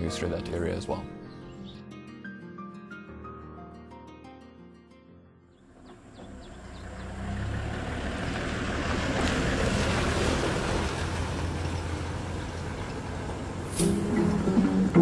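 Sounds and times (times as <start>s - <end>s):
vehicle engine rumble: 5.6s - 15.0s.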